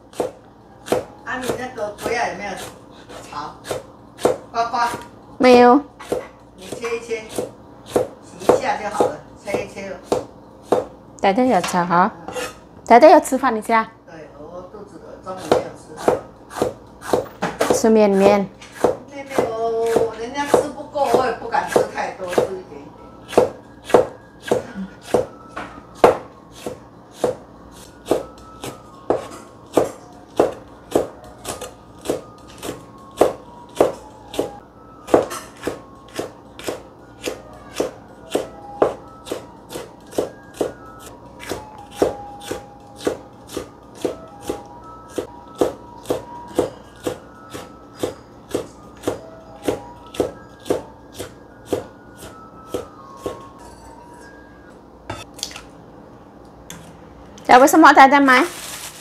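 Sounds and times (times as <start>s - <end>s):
knife chopping on cutting board: 0.1s - 5.1s, 6.0s - 10.9s, 15.4s - 17.9s, 18.6s - 22.6s, 23.3s - 40.8s, 41.4s - 53.5s.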